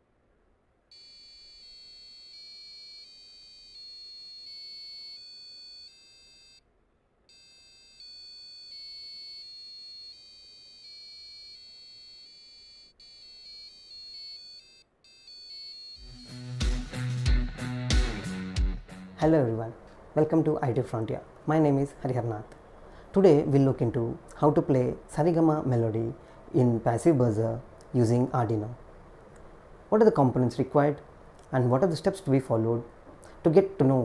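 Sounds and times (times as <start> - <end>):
shrill electronic buzzer beeps: 0.9 - 6.7, 7.3 - 16.7.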